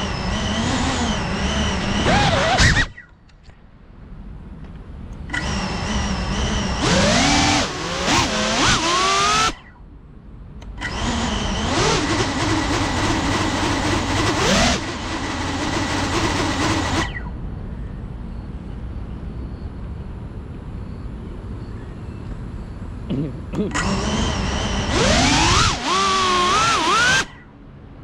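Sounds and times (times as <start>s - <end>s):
drone motors whining: 0.0s - 3.2s, 5.2s - 9.9s, 10.6s - 17.4s, 23.6s - 27.6s.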